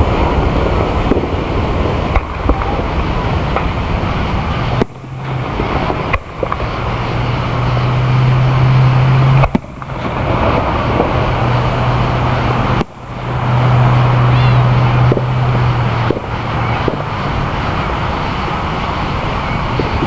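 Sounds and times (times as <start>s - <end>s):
firework shells bursting: 0.0s - 20.0s.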